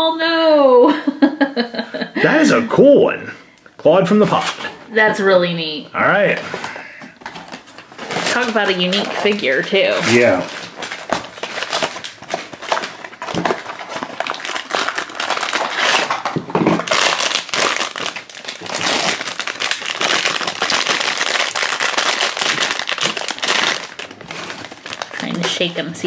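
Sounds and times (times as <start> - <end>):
foil wrapper crinkling: 6.3 - 26.0.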